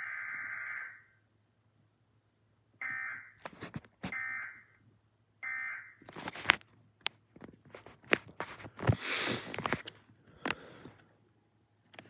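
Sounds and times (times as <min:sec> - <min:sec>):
phone handling clicks and rustling: 0:06.0 - 0:11.1.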